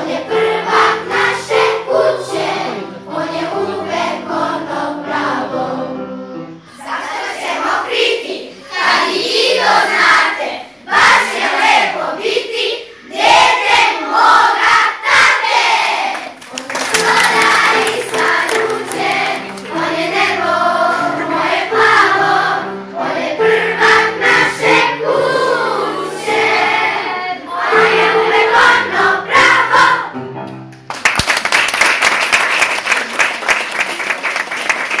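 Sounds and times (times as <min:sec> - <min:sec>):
children's choir singing: 0:00.0 - 0:30.2
audience applause: 0:16.2 - 0:19.8, 0:30.9 - 0:35.0.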